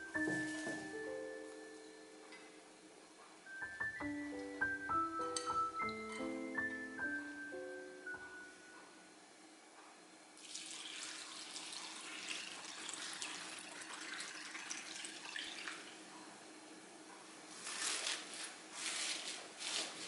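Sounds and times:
liquid pouring and splashing: 10.4 - 16.0.

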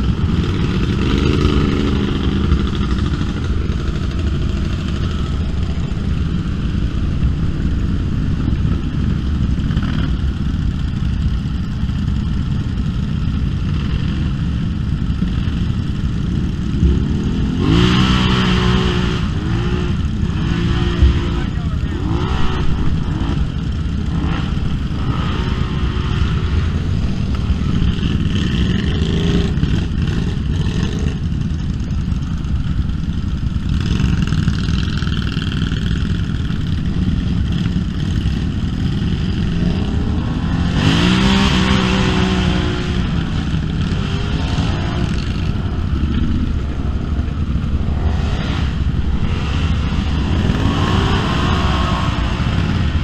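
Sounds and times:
off-road vehicle engines revving: 0.0 - 53.0.

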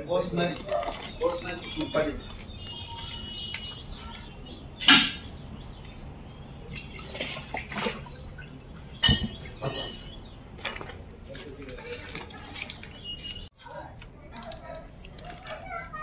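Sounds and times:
plastic bag crinkling: 0.2 - 3.9, 11.6 - 16.0
water sloshing in bags: 0.2 - 4.6, 6.6 - 16.0.

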